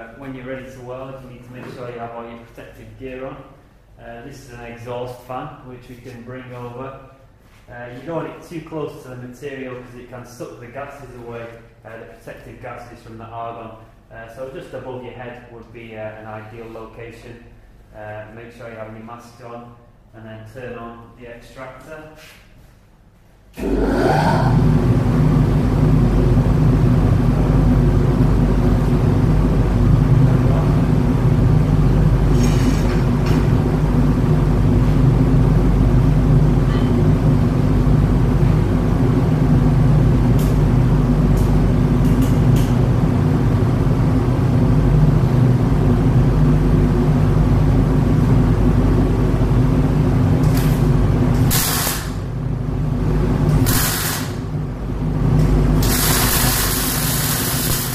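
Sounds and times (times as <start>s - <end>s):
extractor fan running: 22.4s - 57.9s.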